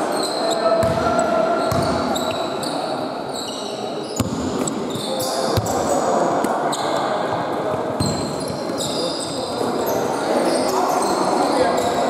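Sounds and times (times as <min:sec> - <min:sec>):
sneakers squeaking on court: 0:00.0 - 0:12.0
basketball bouncing on floor: 0:01.7 - 0:02.0.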